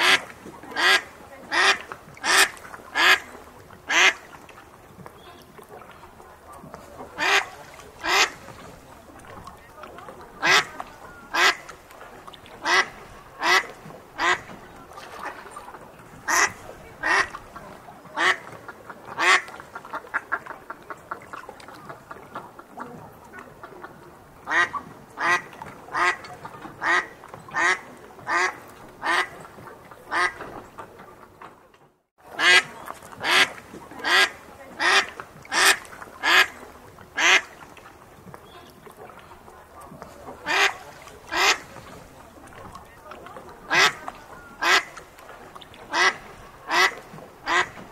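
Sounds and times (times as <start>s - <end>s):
duck quacking: 0.0s - 3.3s, 3.9s - 4.2s, 7.2s - 8.4s, 10.4s - 11.7s, 12.6s - 14.5s, 16.3s - 17.4s, 18.2s - 18.5s, 19.1s - 20.5s, 24.5s - 29.4s, 30.1s - 30.4s, 32.4s - 36.6s, 37.2s - 37.6s, 40.4s - 41.7s, 43.7s - 44.0s, 44.6s - 45.0s, 45.9s - 47.8s.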